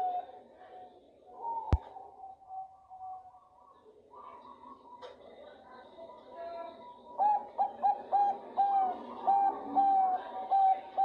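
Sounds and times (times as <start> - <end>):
dove cooing: 0.0 - 2.0, 6.9 - 11.0.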